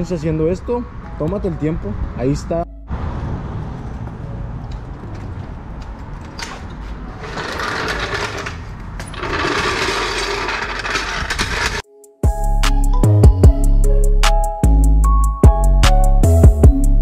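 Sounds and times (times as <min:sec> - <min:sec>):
music: 0:00.0 - 0:03.3, 0:11.8 - 0:17.0
floor jack wheels rattling: 0:06.0 - 0:11.8.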